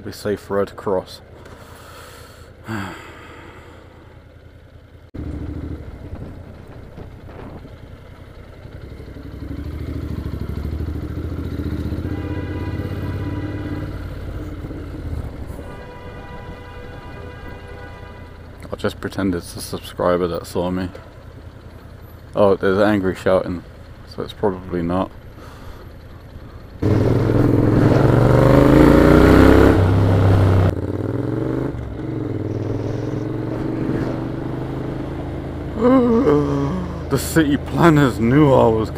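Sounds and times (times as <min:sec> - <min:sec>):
motorcycle engine running: 0:00.1 - 0:38.9
car horn: 0:10.7 - 0:18.9.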